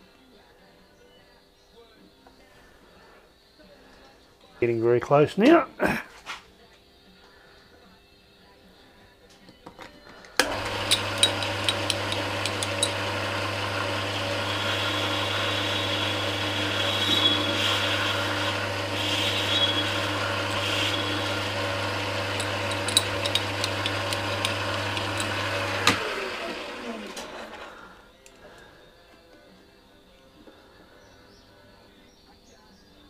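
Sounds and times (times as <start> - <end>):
metal lathe running: 10.4 - 27.8.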